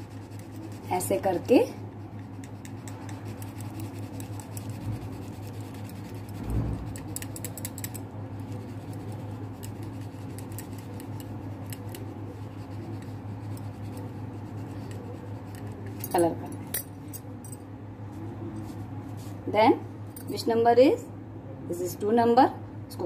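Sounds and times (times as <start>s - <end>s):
scratchy colouring on paper: 0.0s - 6.5s
steady low hum: 0.0s - 23.0s.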